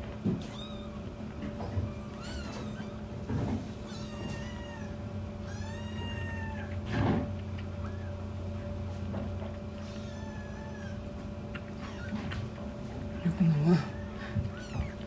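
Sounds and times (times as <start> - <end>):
kittens mewing: 1.8 - 3.1, 3.7 - 6.9, 9.7 - 15.0.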